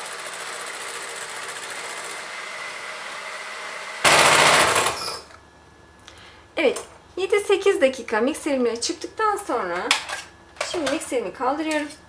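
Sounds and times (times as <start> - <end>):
electric hand mixer whipping: 0.0 - 5.2.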